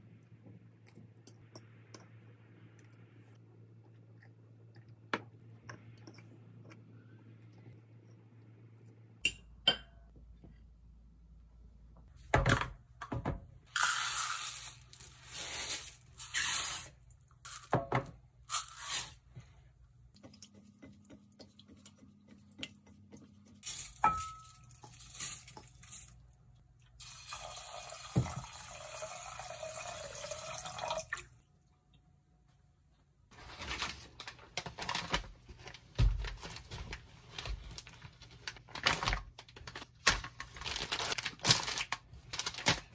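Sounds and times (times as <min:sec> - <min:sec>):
tap water running: 0:27.0 - 0:31.4.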